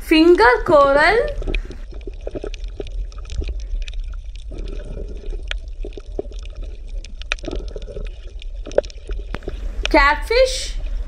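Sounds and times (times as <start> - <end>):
underwater bubbling: 0.0 - 10.0, 10.7 - 11.0
underwater low rumble: 0.0 - 11.0
clicks and pops: 1.3 - 10.0.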